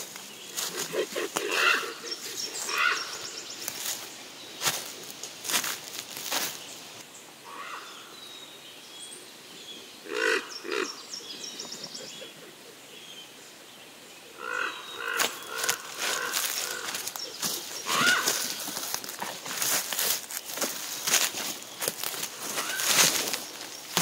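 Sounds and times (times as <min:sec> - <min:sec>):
footsteps crunching dry leaves: 0:00.0 - 0:07.0, 0:15.0 - 0:24.0.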